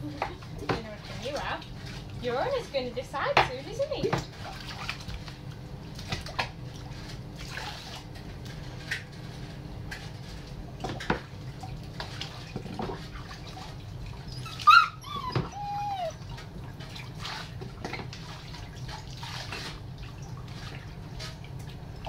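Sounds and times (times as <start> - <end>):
water splashing in sink: 0.0 - 22.0
puppy whining: 14.2 - 16.4.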